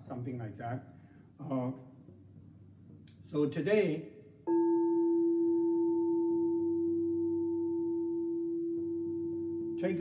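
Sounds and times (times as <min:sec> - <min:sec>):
singing bowl ringing: 0:04.5 - 0:10.0.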